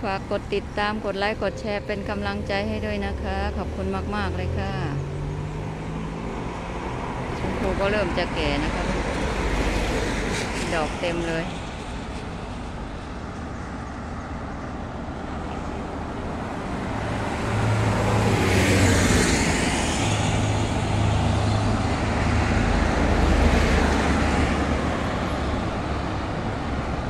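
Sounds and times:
vehicle passing by: 16.5 - 25.9.

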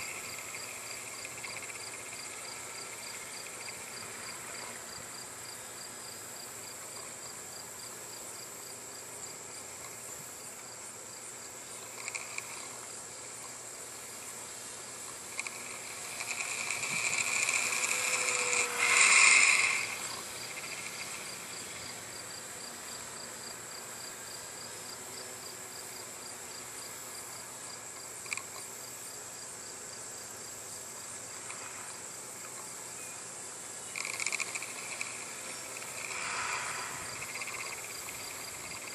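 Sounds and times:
faint ticks: 0.0 - 4.8, 9.7 - 10.7, 11.8 - 13.6, 15.0 - 22.0, 27.9 - 28.7, 31.3 - 33.1, 33.9 - 38.9
model plane motor and propeller: 0.0 - 28.9, 30.3 - 38.9
crickets trilling: 0.0 - 38.9.

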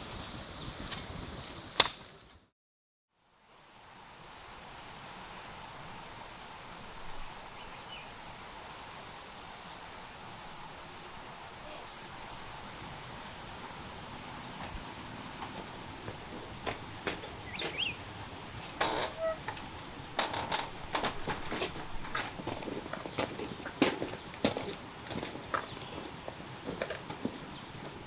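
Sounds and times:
sharp click: 1.8 - 2.0
insects chirring: 3.3 - 28.0.

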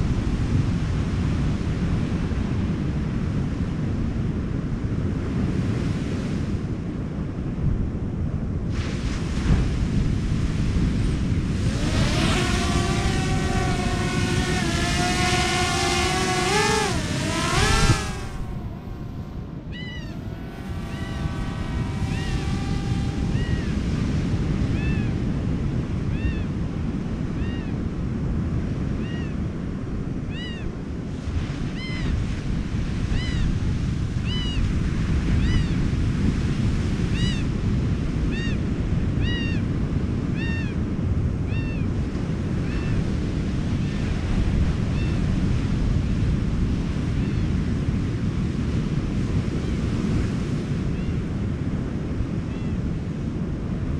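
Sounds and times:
wind: 0.0 - 53.9
motor-like whine: 10.2 - 25.6
surf rushing: 10.6 - 25.0.

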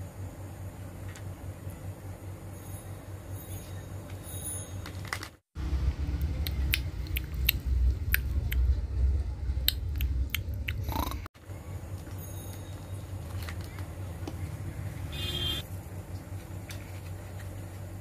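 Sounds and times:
faint room hum: 0.0 - 18.0
loud low rumble: 5.6 - 11.2.

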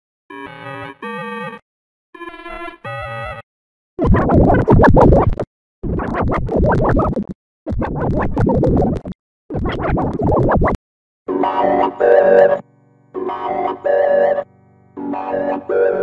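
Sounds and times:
distorted scratchy song blare: 4.0 - 10.8.

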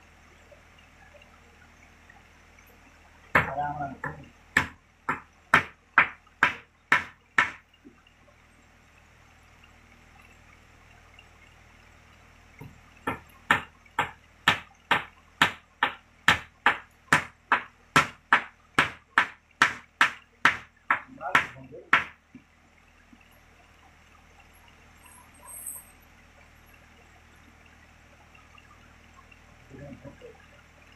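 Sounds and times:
hammer striking on wooden plank: 3.3 - 7.6, 12.6 - 22.2.

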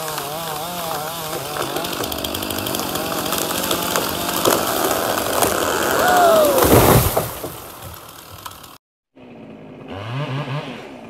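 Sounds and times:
chainsaw idling: 0.0 - 6.6, 7.4 - 8.8
branches crashing: 0.0 - 8.8
wood cracking: 0.0 - 8.8.

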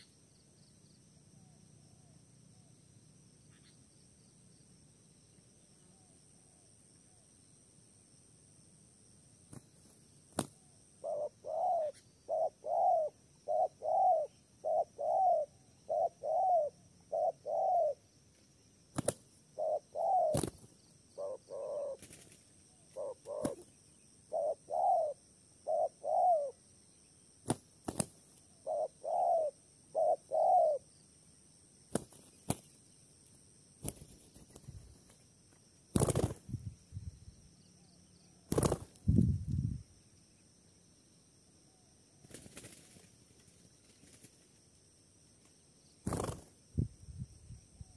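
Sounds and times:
wings flapping: 9.5 - 10.6, 19.0 - 19.3, 20.3 - 20.8, 22.0 - 22.5, 23.2 - 23.7, 27.5 - 28.3, 31.9 - 32.8, 33.8 - 35.2, 35.9 - 36.6, 38.5 - 39.2, 42.2 - 44.6, 46.0 - 46.6
dove cooing: 10.6 - 18.0, 19.6 - 20.6, 21.2 - 26.6, 28.6 - 30.9.

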